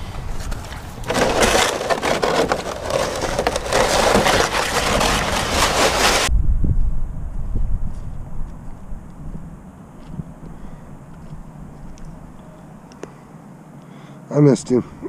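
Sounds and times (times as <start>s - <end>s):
sled crunching and scraping on snow: 0.0s - 6.3s.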